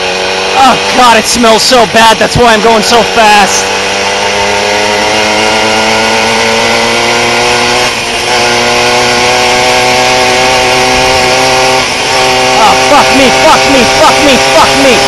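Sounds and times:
moped engine running flat out: 0.0 - 15.0.

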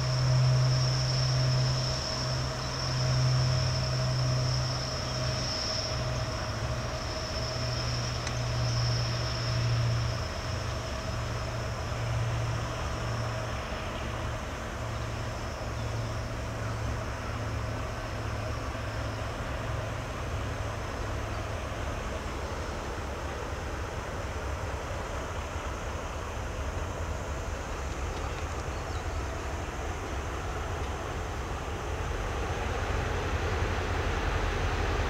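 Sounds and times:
faint high whine: 0.0 - 35.0
locomotive low hum: 0.0 - 35.0.

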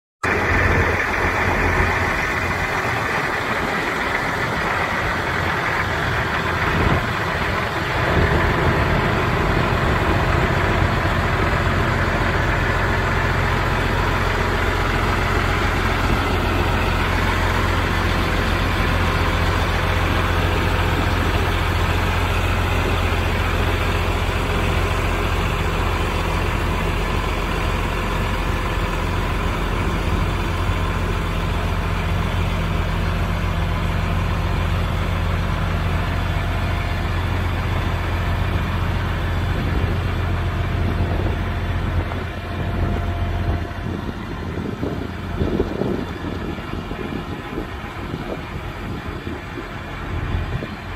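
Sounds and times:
tractor diesel engine idling: 0.2 - 50.9.

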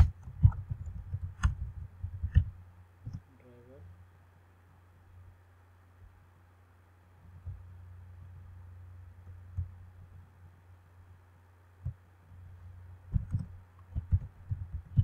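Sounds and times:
keyboard keystroke thumps: 0.0 - 3.2, 13.1 - 15.0
steady low hum: 0.0 - 15.0.

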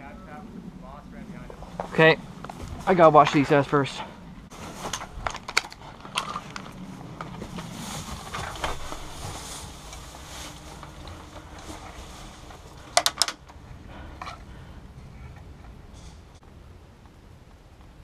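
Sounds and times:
rustling through tall grass: 4.5 - 13.9.

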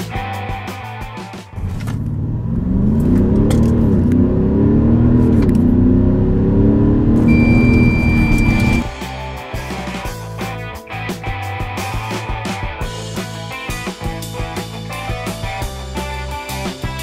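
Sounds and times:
diesel engine accelerating: 1.5 - 8.9
steady high beep: 7.2 - 8.9.

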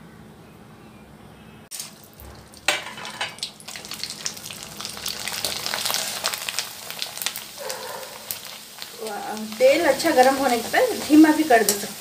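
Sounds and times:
food deep-frying in hot oil: 1.7 - 12.0.

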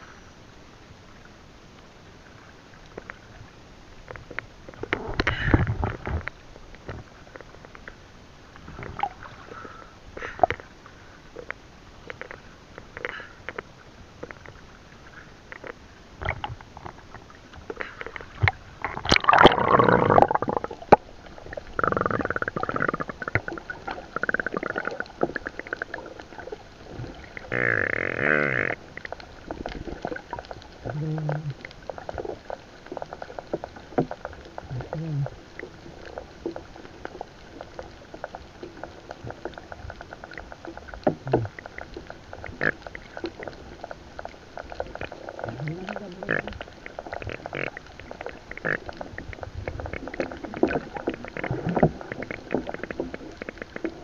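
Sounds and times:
underwater clicks and crackles: 1.2 - 54.0
muffled underwater gurgling: 15.2 - 54.0.

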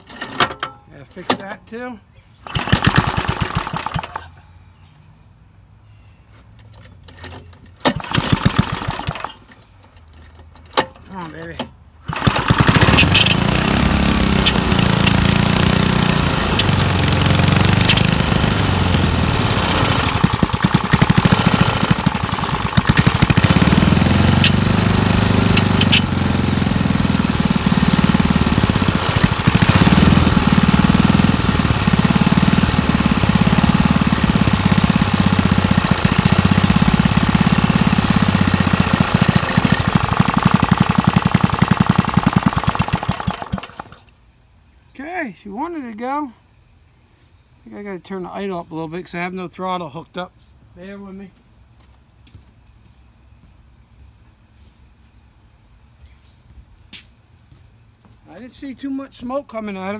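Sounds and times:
single-cylinder engine running: 2.4 - 4.3, 7.1 - 9.4, 12.0 - 44.1.

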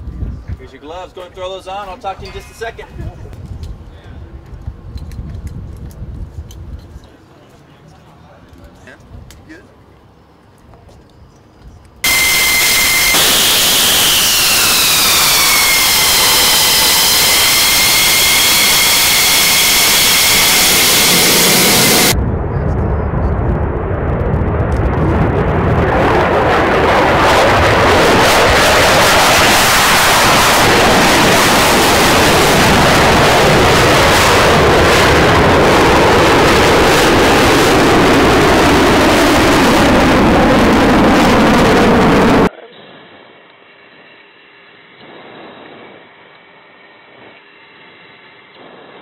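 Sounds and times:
jet engine whine: 11.8 - 49.0
jet taking off rumbling: 12.0 - 42.5.

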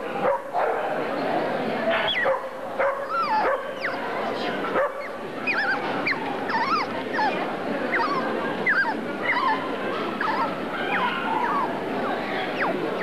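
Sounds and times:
background hubbub: 0.0 - 13.0
dogs yelping and whining: 3.0 - 4.1, 5.0 - 13.0.

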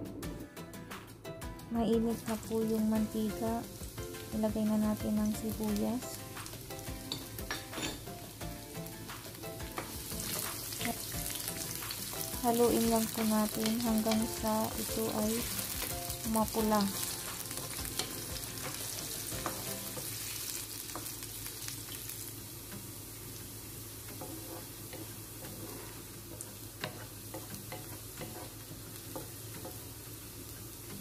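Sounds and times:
onions sizzling in a frying pan: 1.8 - 31.0
wooden spatula scraping a pan: 24.0 - 29.8.

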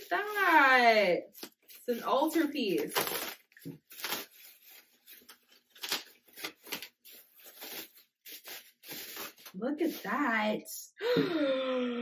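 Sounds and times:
bubble wrap rustling and crinkling: 0.0 - 10.5.

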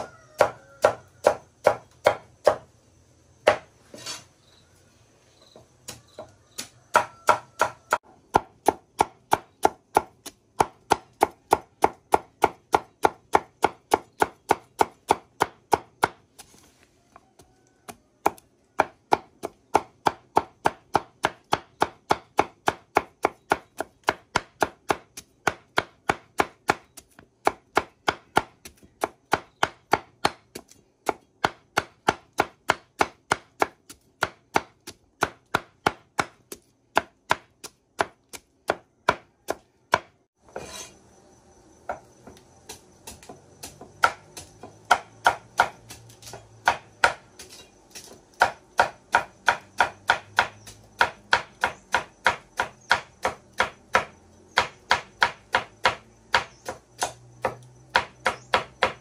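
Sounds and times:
cleaver chopping roots: 17.8 - 40.1, 42.6 - 59.0.

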